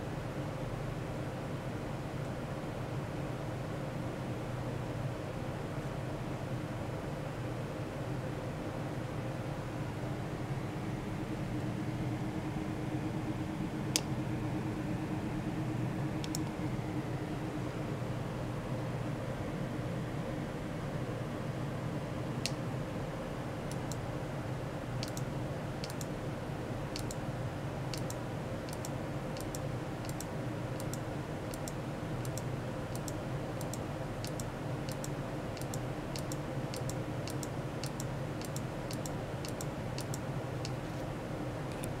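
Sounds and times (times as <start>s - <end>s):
steady machine hum: 0.0s - 42.0s
computer mouse buttons clicking: 16.2s - 16.5s, 23.7s - 24.0s, 25.0s - 26.1s, 27.0s - 27.2s, 27.9s - 40.8s.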